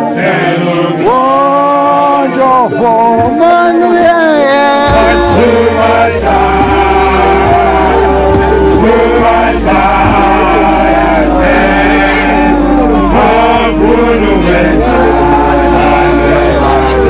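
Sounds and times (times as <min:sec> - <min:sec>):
group of voices chanting and singing: 0:00.0 - 0:17.0
held note: 0:04.8 - 0:17.0
steady low bass: 0:04.9 - 0:17.0.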